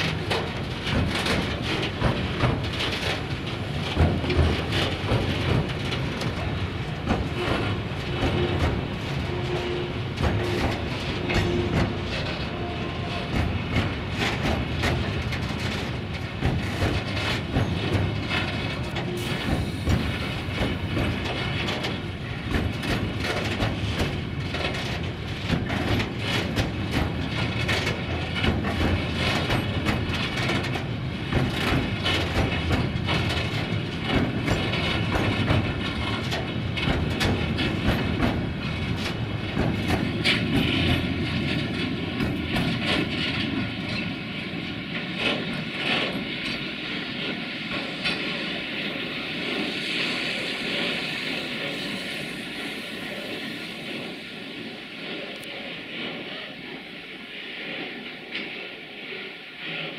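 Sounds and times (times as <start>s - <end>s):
low train rumble: 0.0s - 59.9s
train wheels clattering over rail joints: 0.0s - 59.9s
steady high whine: 46.5s - 59.4s.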